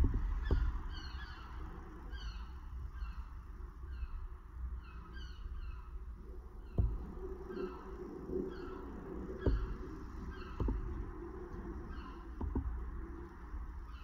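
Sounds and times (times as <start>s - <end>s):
birds calling: 0.1s - 14.0s.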